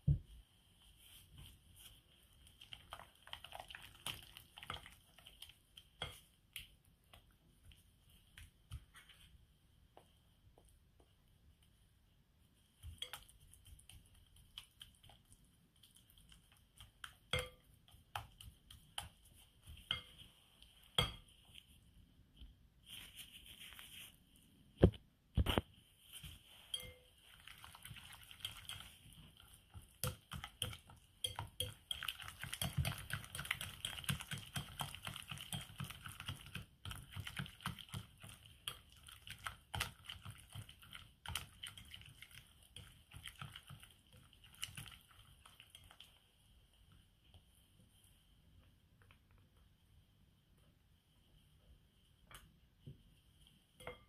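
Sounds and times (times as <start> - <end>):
fork clinking on glass bowl: 26.7 - 27.1.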